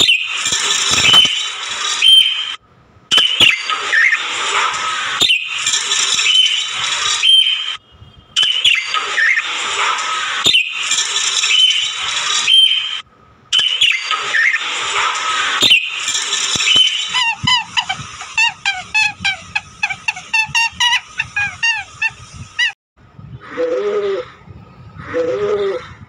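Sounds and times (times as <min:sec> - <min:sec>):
budgerigars chattering and chirping: 0:15.6 - 0:22.7.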